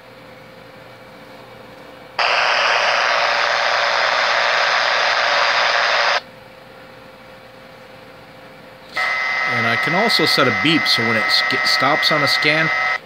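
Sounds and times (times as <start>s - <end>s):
radio speaker static: 2.2s - 6.2s, 9.0s - 13.0s.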